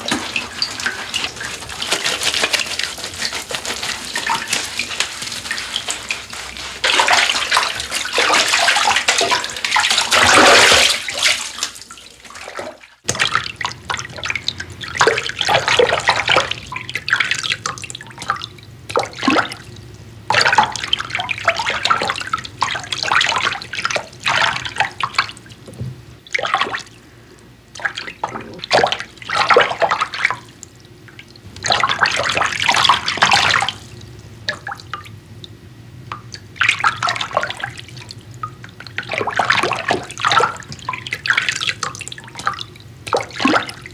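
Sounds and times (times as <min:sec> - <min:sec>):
bathwater splashing: 0:00.0 - 0:35.1, 0:36.1 - 0:43.9.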